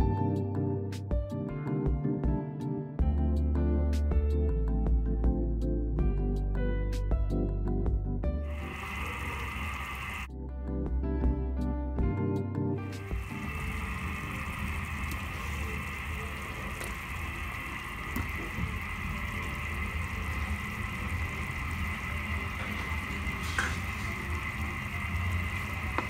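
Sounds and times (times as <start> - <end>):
broth boiling in a wok: 8.5 - 10.3, 13.0 - 26.0.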